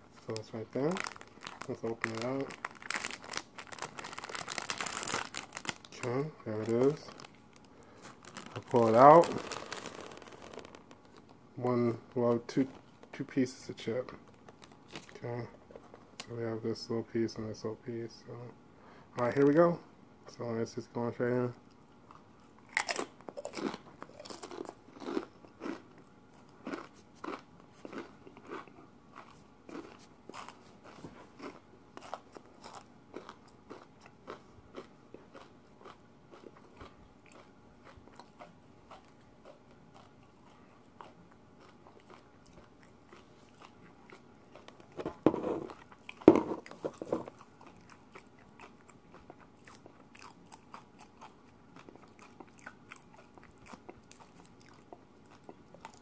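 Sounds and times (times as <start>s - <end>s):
person chewing crunchy chip: 0.8s - 11.4s, 22.1s - 56.0s.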